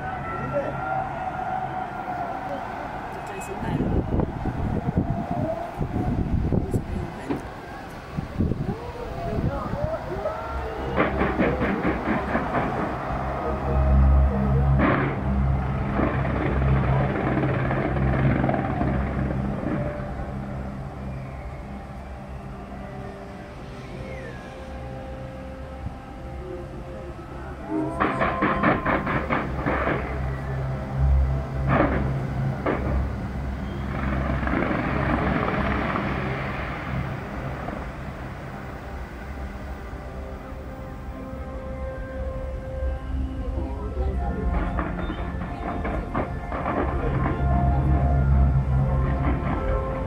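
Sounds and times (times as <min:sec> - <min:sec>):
fireworks rumbling and crackling: 0:02.1 - 0:21.6, 0:27.6 - 0:40.8, 0:43.3 - 0:50.0.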